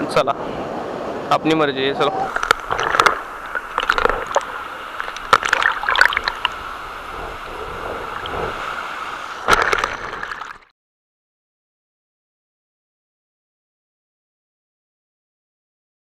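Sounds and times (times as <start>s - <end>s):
shallow surf sloshing: 0.0s - 10.7s
water splashing on microphone: 2.2s - 10.7s.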